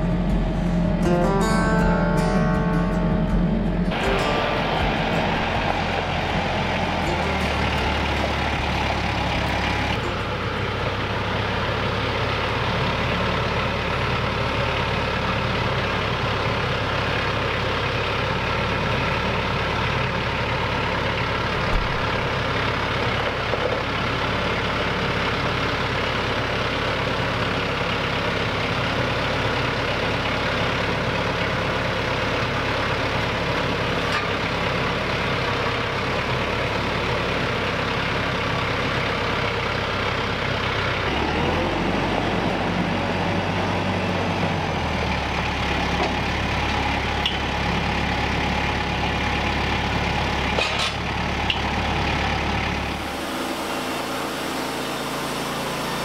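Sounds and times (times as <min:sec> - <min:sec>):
tractor diesel engine running: 0:00.0 - 0:56.0
brief knock: 0:21.7 - 0:22.1.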